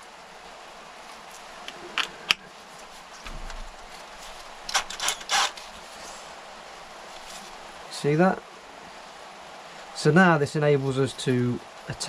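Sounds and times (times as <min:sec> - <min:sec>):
clicks and scrapes of drill chuck: 0:04.7 - 0:05.6.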